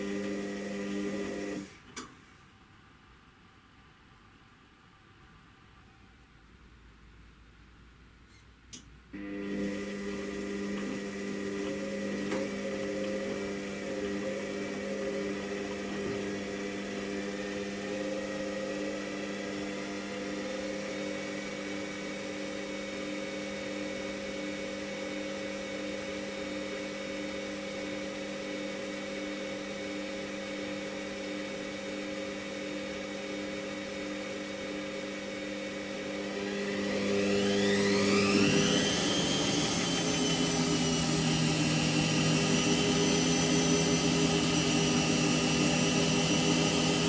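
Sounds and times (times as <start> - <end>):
washing machine spinning: 0.0 - 1.7, 9.2 - 22.2, 33.1 - 47.0.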